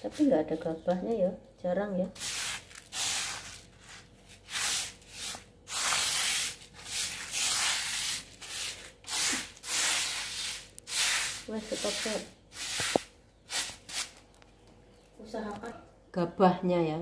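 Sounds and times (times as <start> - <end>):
rice grains swishing in tray: 2.2 - 14.1.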